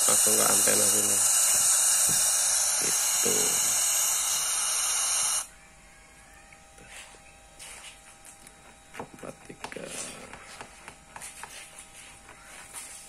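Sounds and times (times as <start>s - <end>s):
radio receiver hiss: 0.0s - 5.5s.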